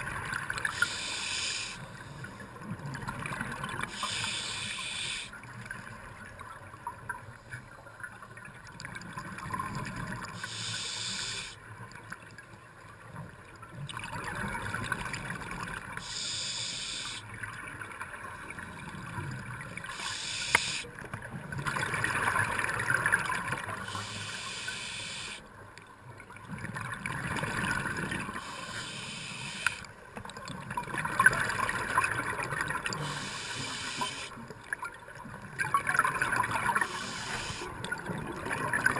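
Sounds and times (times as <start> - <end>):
regulator inhale hiss: 0.7 - 2.3, 3.9 - 5.3, 10.4 - 11.6, 16.0 - 17.2, 19.9 - 20.9, 23.8 - 25.4, 28.4 - 29.9, 33.0 - 34.4, 36.8 - 37.8.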